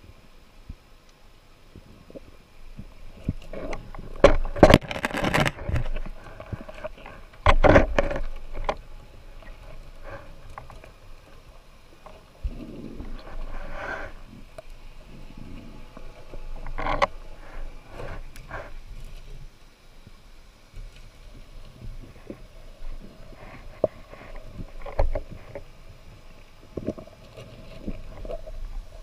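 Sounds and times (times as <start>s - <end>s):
knocks and scrapes: 2.8s - 10.9s, 15.1s - 19.3s, 21.8s - 25.8s.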